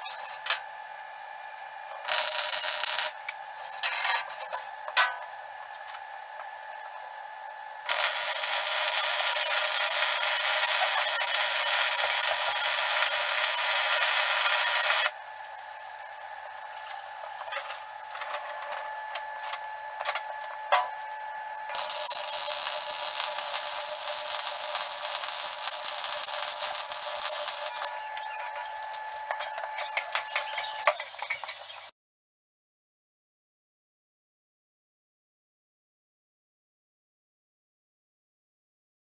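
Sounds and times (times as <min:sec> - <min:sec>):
arc welding crackle: 0:02.0 - 0:03.2, 0:07.9 - 0:15.2, 0:21.7 - 0:27.9.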